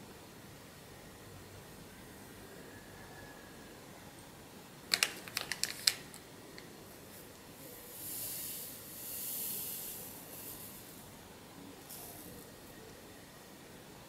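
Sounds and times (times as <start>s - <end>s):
foil sachet crinkling: 4.9s - 6.2s
yeast granules pouring: 7.6s - 11.1s.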